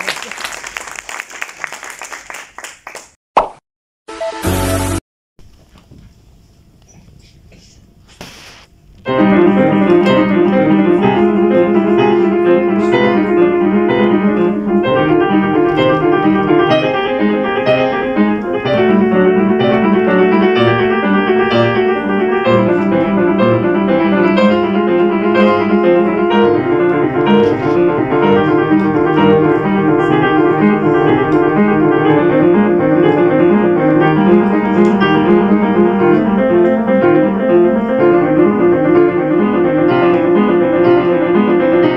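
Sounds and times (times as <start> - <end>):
solo piano playing: 9.1 - 41.9.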